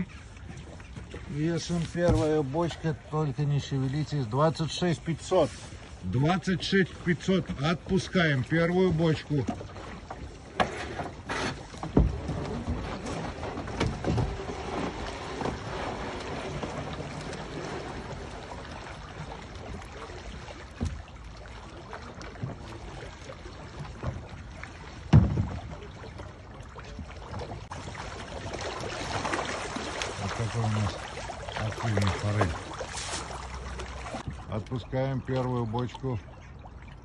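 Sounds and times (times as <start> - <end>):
hiss of water and wind: 0.0 - 23.9
knocks and thumps on wooden pontoon: 0.6 - 2.8, 7.4 - 34.7.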